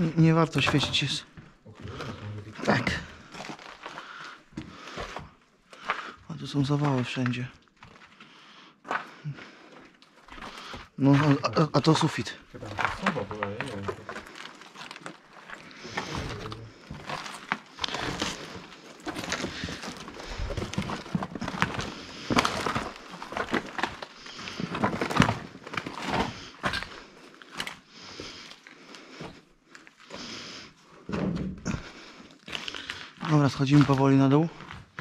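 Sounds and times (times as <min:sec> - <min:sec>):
debris knocking underfoot: 0:00.0 - 0:08.2, 0:10.2 - 0:28.4
footsteps crunching over rubble: 0:00.0 - 0:35.0.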